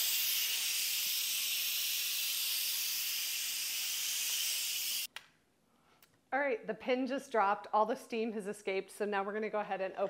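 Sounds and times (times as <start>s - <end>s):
steam hissing from valve: 0.0s - 5.1s.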